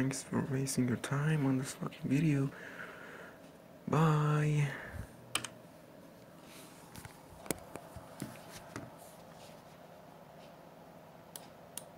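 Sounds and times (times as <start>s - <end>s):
soft rustle: 6.0s - 10.7s.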